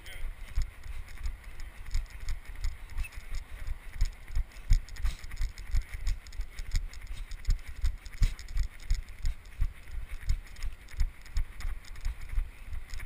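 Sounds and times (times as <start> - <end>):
running footsteps crunching snow: 0.0 - 13.0.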